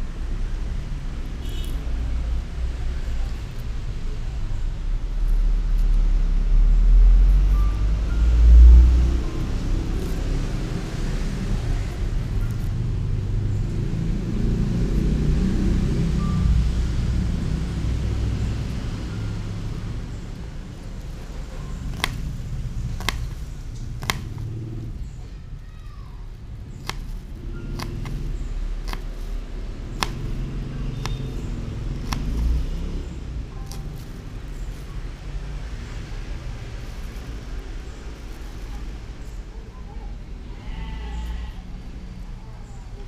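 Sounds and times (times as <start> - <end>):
knife tapping on cutting board: 24.0 - 24.3, 27.8 - 28.2.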